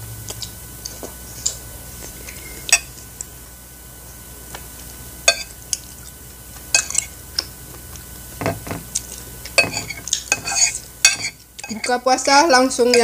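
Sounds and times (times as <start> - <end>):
metal spoon scraping ceramic plate: 9.6 - 12.0.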